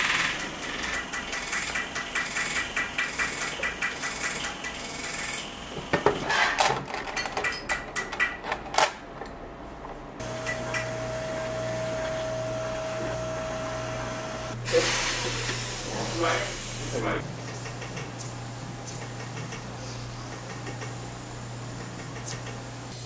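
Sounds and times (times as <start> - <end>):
butane torch hissing: 10.2 - 17.2.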